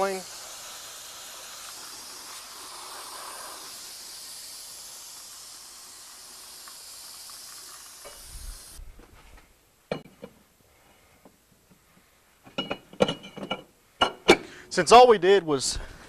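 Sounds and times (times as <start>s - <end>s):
aerosol spray hissing: 0.0s - 8.8s.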